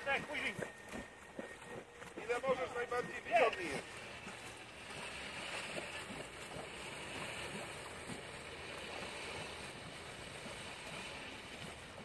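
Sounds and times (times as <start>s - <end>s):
water noise: 0.0s - 12.0s
wind: 0.0s - 12.0s.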